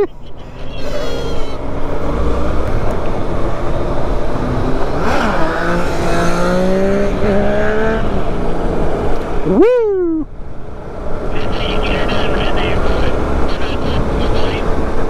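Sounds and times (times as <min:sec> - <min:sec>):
motorcycle engines accelerating: 0:04.2 - 0:09.6, 0:10.6 - 0:15.0.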